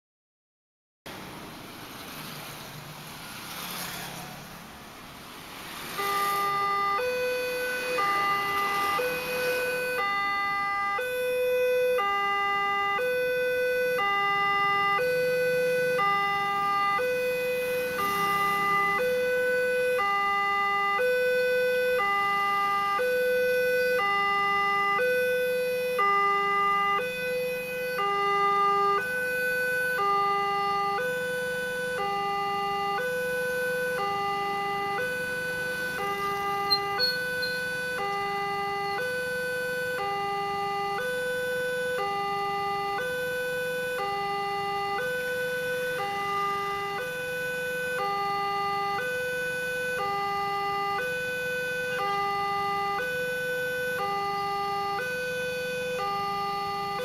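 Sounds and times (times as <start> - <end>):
motorcycles passing: 1.2 - 10.5, 16.0 - 20.4, 34.1 - 38.6
crossing alarm two-tone chime: 34.8 - 38.2.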